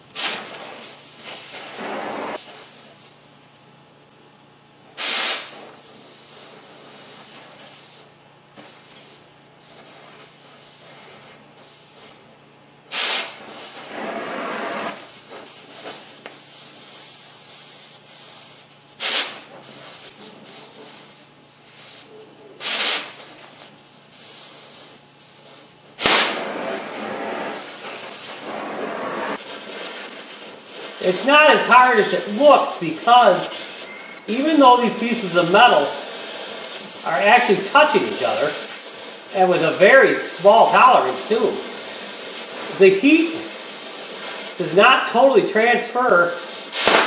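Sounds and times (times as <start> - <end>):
torch oxygen blasts: 0.0 - 3.0, 4.9 - 8.1, 12.8 - 18.4, 19.0 - 23.6, 25.9 - 47.0
cutting torch hissing: 0.2 - 2.5, 12.9 - 16.0, 26.0 - 47.0.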